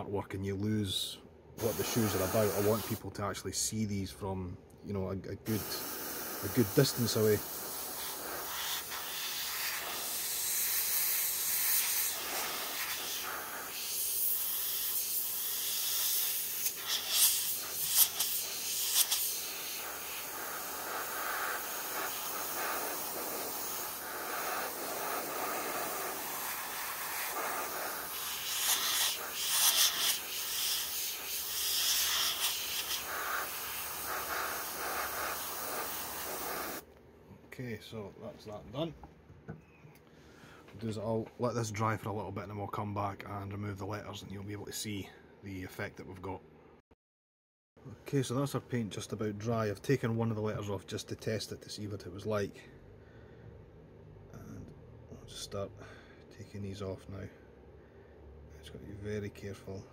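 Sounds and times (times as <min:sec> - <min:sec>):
airbrush spraying hiss: 0:01.6 - 0:03.0, 0:05.5 - 0:36.9.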